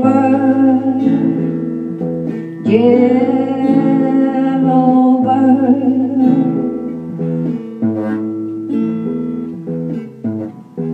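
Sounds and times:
woman singing: 0.0 - 7.2
acoustic guitar strumming: 0.0 - 10.9.

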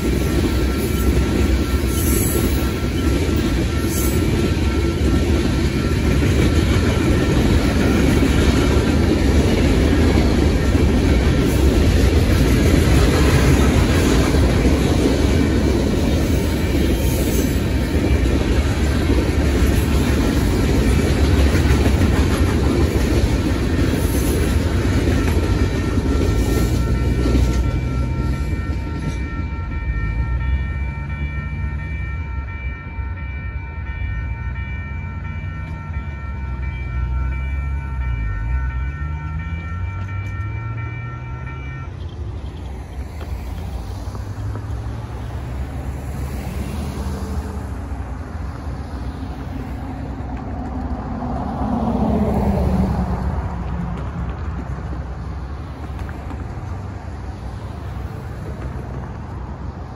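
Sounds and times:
crossing signal bell ringing: 0.0 - 47.0
freight train rolling past: 0.0 - 59.9.

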